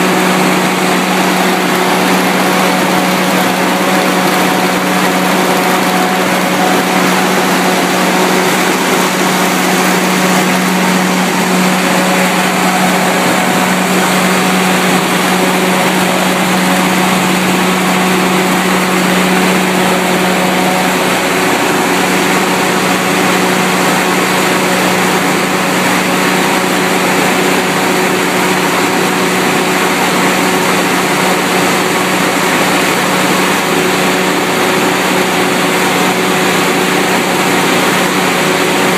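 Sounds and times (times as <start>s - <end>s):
generator engine humming: 0.0s - 38.9s.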